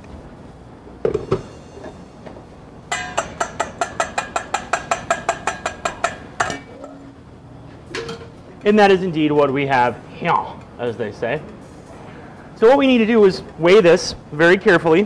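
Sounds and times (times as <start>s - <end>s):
strainer tapping on steel bowl: 2.9s - 6.6s.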